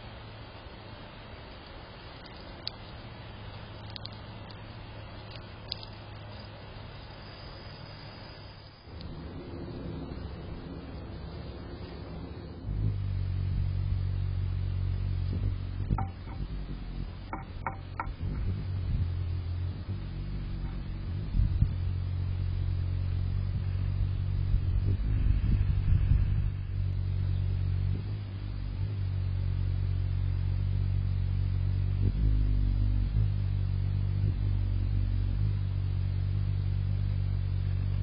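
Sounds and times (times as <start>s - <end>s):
hummingbird wings humming: 0.0s - 38.0s
light clicks: 3.5s - 4.6s.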